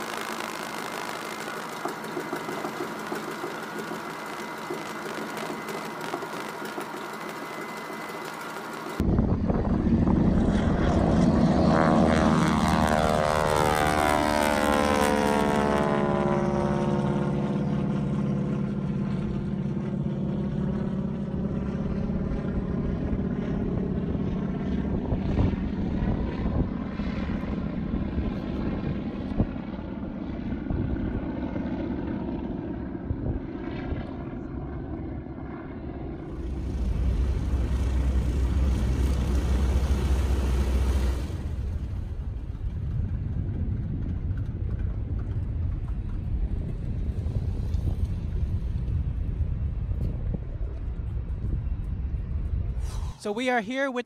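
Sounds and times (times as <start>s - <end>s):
propeller plane engine droning: 0.0s - 54.0s
low steady rumble: 36.0s - 53.4s.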